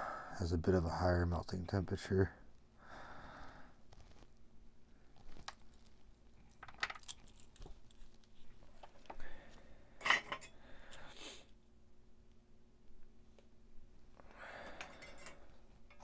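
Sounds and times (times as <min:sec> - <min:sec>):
soft rustling: 0:03.8 - 0:06.4.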